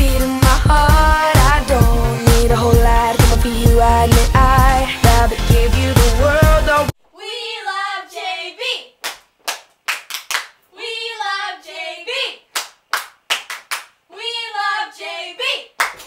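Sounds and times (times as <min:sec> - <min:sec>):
recorded pop music: 0:00.0 - 0:07.0
girls singing unaccompanied: 0:00.0 - 0:08.9, 0:10.7 - 0:12.5, 0:14.1 - 0:15.8
sharp hand claps: 0:09.0 - 0:10.6, 0:12.6 - 0:14.0, 0:15.8 - 0:16.0.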